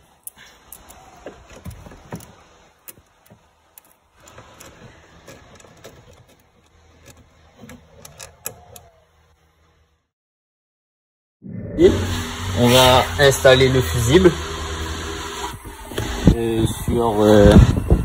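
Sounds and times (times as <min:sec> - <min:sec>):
hand tools clicking and tapping: 0:00.1 - 0:08.9
small metallic rattles: 0:00.1 - 0:09.0.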